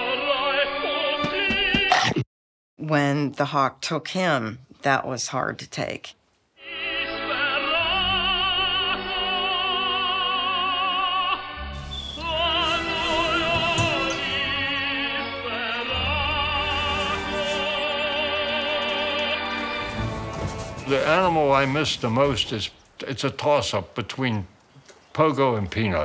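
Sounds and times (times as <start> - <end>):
opera singer with vibrato: 6.6 - 20.6
sustained accompaniment: 11.4 - 22.8.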